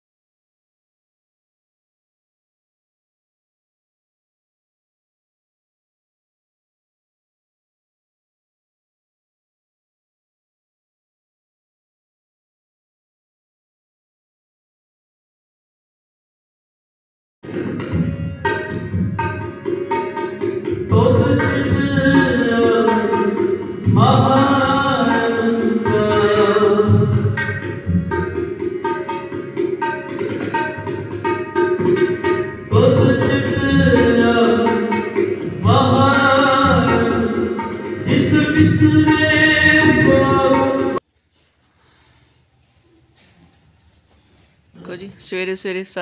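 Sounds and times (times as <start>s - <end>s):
tabla strokes: 17.4s - 41.0s
person singing with sliding pitch: 20.9s - 27.4s, 32.7s - 41.0s.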